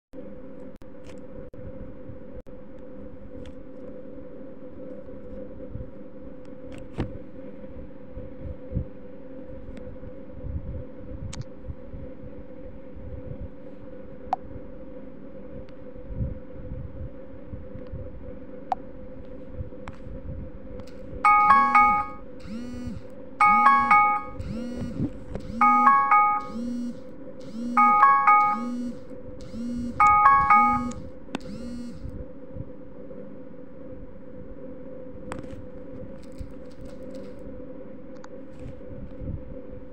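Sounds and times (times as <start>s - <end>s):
low mechanical hum: 0.2s - 39.9s
soft pulsing low tone: 4.3s - 37.9s
bright alarm chime: 21.3s - 32.0s.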